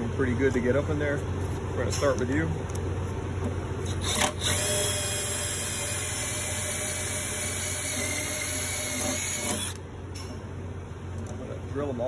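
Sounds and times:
cordless drill drilling: 3.9 - 9.8.

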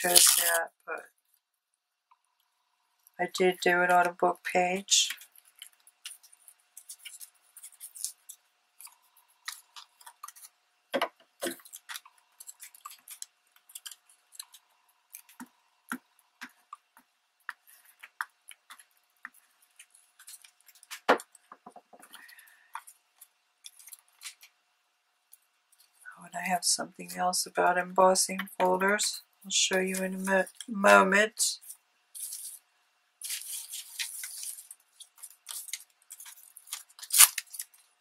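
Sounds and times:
small clicks and taps: 8.3 - 24.6
paper rustling: 31.6 - 32.6, 33.2 - 37.9.

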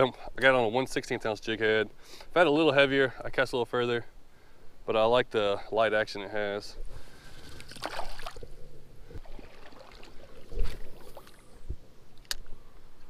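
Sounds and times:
water splashing and sloshing: 7.2 - 11.8
sharp click: 12.2 - 12.5.

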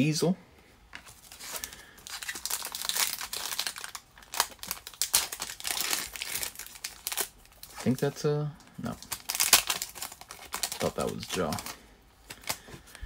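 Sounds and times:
foil wrapper tearing and crinkling: 1.1 - 8.2, 8.8 - 12.7.

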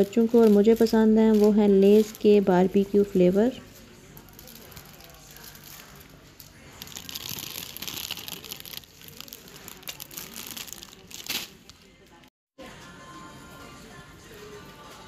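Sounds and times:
crisp packet crinkling: 4.2 - 6.2, 6.8 - 11.7.

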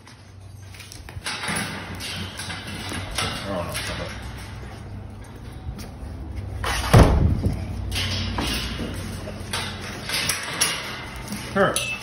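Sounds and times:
heavy thump: 6.7 - 7.6.

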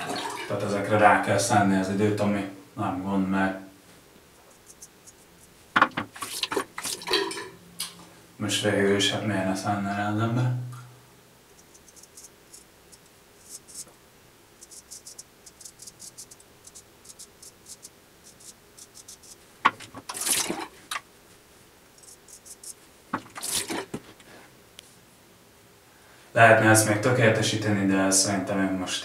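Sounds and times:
water running at sink: 0.0 - 0.9, 6.0 - 7.6
razor scraping stubble: 4.4 - 5.6, 11.5 - 13.9, 14.6 - 19.4, 22.0 - 23.9.

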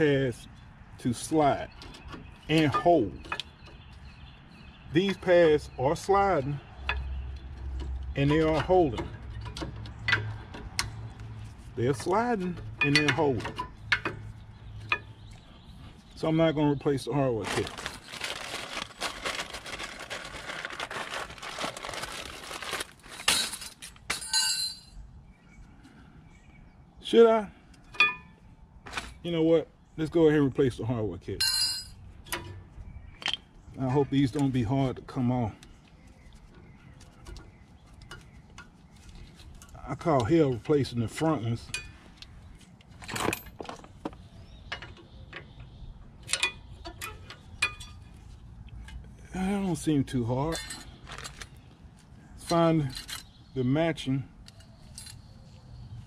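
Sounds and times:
plastic packaging crinkling: 17.4 - 23.3
small metal parts clinking: 17.9 - 25.0, 31.4 - 32.5, 50.5 - 51.6, 52.5 - 53.4, 54.4 - 55.3.

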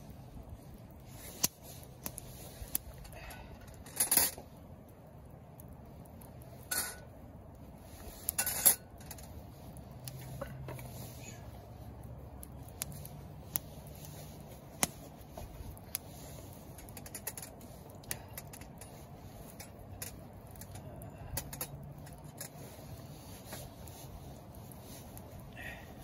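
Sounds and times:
fire low hiss: 0.0 - 26.0
firewood crackling and popping: 0.0 - 26.0.

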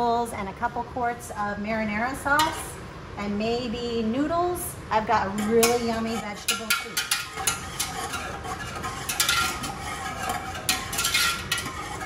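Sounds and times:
whisk clinking and scraping pot: 5.2 - 12.0.

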